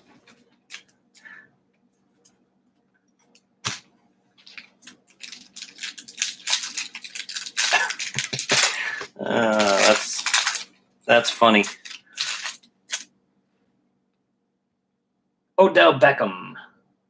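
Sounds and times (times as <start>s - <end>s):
foil wrapper crinkling: 4.4s - 13.1s.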